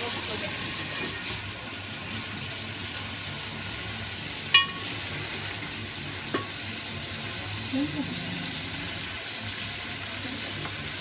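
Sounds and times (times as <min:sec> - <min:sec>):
chicken sizzling in oil: 0:00.0 - 0:11.0
spatula knocking metal pot: 0:04.5 - 0:04.9, 0:06.3 - 0:06.6.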